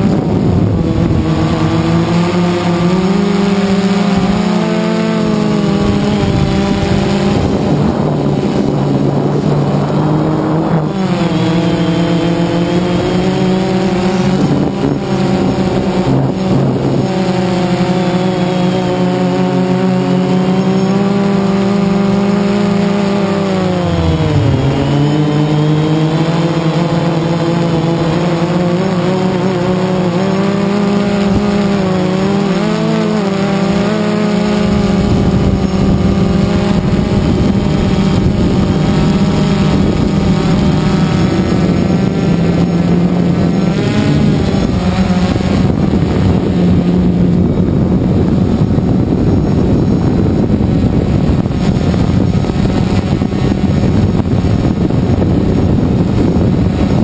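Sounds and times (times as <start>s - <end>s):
drone propellers humming: 0.0s - 57.0s
wind rushing on microphone: 0.0s - 57.0s.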